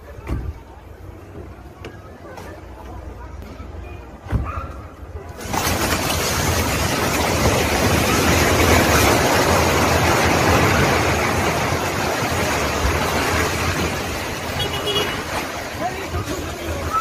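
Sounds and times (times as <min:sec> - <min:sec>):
building collapsing rumble: 0:05.4 - 0:14.6.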